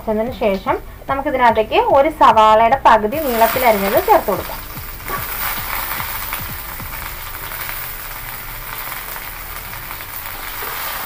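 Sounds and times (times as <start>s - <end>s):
onion sizzling in oil: 3.2s - 11.0s.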